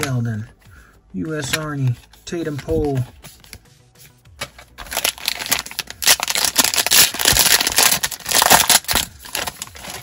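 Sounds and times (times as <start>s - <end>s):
plastic wrapper tearing and crinkling: 4.8s - 10.0s.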